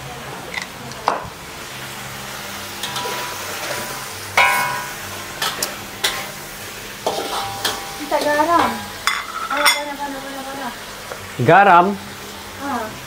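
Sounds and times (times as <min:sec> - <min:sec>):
food sizzling in a pan: 0:00.0 - 0:13.0
utensil knocking against pan: 0:04.4 - 0:04.9
ringing metal clank: 0:04.4 - 0:05.0.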